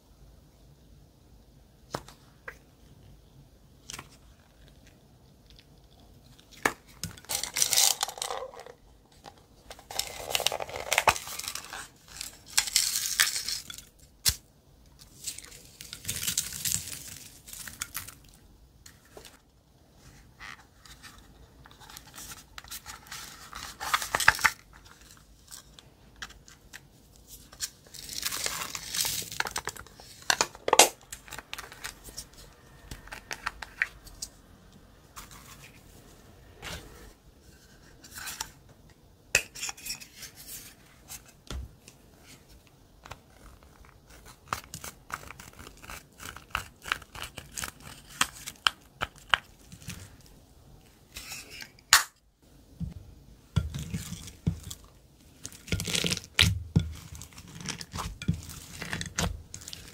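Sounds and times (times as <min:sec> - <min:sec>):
crinkling and tearing packaging: 0:05.8 - 0:18.4, 0:21.6 - 0:34.4, 0:43.1 - 0:50.3, 0:53.8 - 0:59.9.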